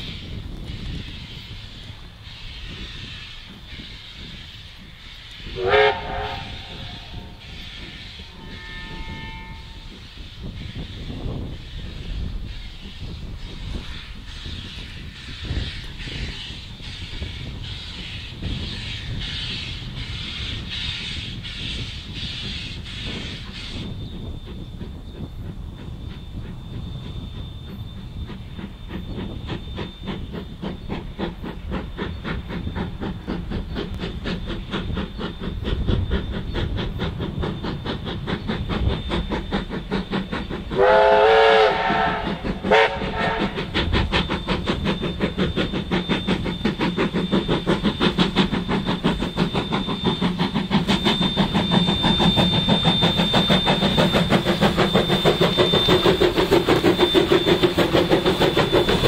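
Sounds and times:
steam locomotive exhaust beats: 0.0s - 59.0s
steam whistle blasts: 2.3s - 10.2s, 40.7s - 43.8s.

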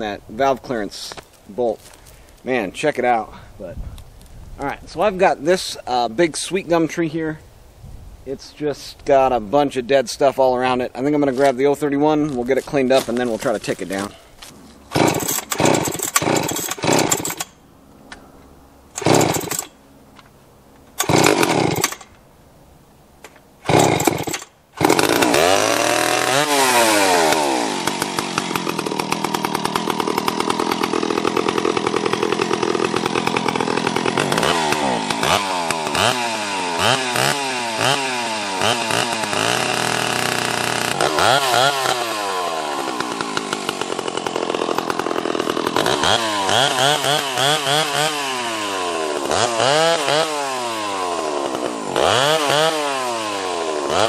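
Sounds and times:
chainsaw revving: 12.9s - 17.6s, 18.9s - 19.8s, 20.9s - 22.1s, 23.6s - 54.0s.

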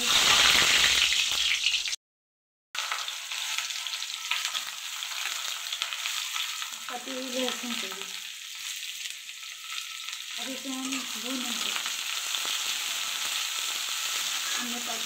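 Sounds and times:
hot oil sizzling: 0.0s - 2.0s, 2.8s - 15.0s
metal spatula scraping pan: 14.0s - 15.0s.

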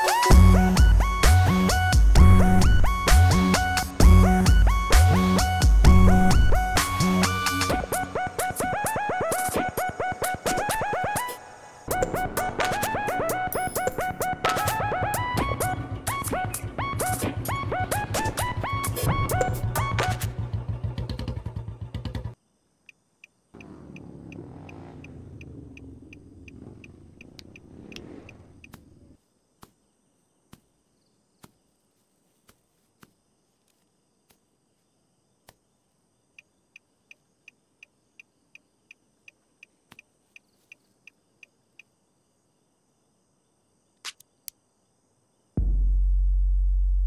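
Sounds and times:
motorcycle engine running: 15.6s - 22.4s, 23.6s - 29.1s
crickets chirping: 22.3s - 45.6s.

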